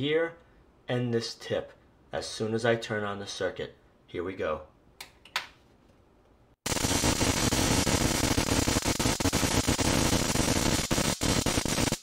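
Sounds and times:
high-voltage sparks crackling: 6.6 - 12.0.

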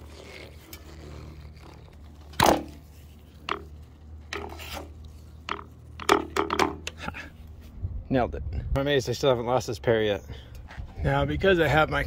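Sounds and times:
metal clicks and scrapes: 0.0 - 7.0.

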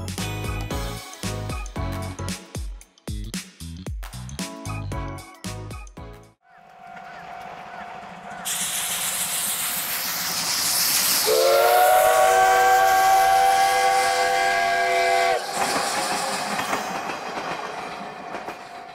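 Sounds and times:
train coaches running on rails: 6.5 - 18.9
steam hissing: 8.1 - 18.2
steam locomotive whistle: 11.0 - 16.7.

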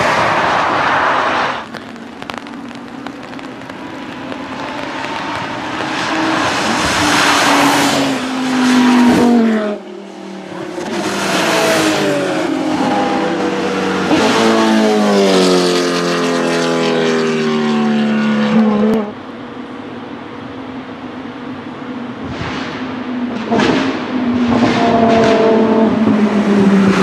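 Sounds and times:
race car engines at high revs: 3.4 - 19.3, 21.7 - 27.0.

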